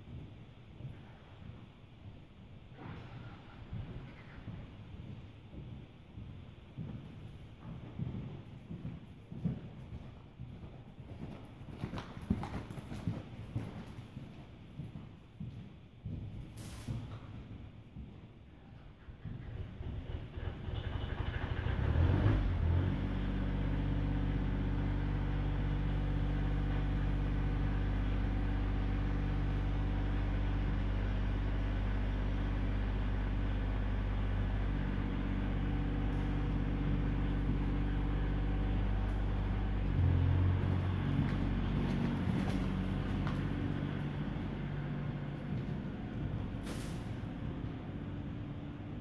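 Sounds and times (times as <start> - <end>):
engine idling: 19.0 - 49.0.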